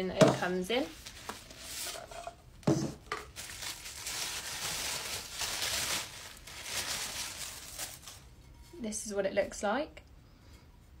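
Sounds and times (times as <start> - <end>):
packing wrap crinkling: 3.1 - 8.3.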